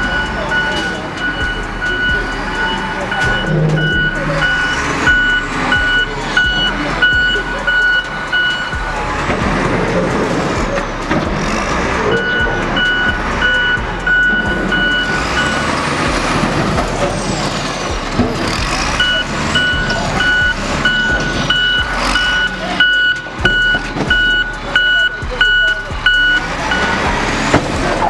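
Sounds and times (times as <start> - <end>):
reversing alarm beeping: 0.0 - 11.2, 11.9 - 27.3
diesel engine running: 0.0 - 28.0.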